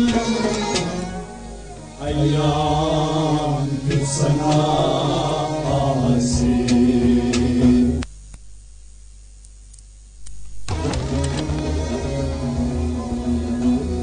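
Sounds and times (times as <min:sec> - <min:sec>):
harmonium: 0:00.0 - 0:05.9.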